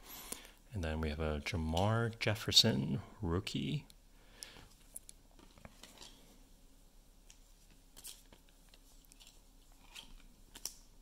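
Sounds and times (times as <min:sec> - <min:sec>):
faint rustles and clicks: 0:04.6 - 0:11.0.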